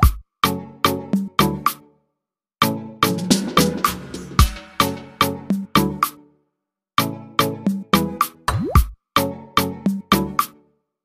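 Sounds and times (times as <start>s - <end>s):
percussive background music: 0.0s - 0.3s, 3.0s - 6.2s, 7.0s - 9.0s.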